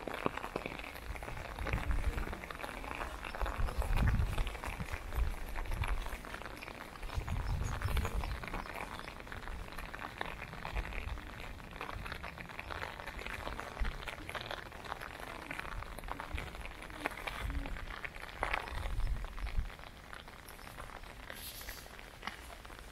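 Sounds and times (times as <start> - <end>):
rain pattering on umbrella: 0.0 - 22.9.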